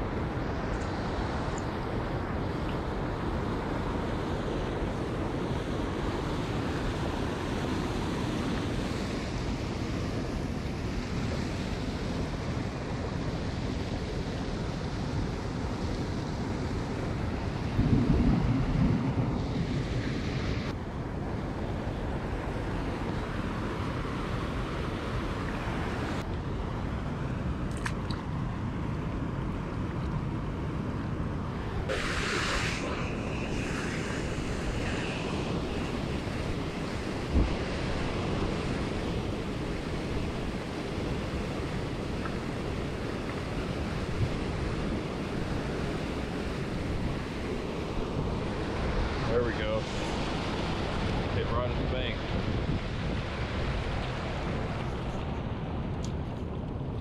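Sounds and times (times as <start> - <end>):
wind buffeting microphone: 13.7 - 23.8, 31.5 - 57.0
high hiss: 31.9 - 37.2.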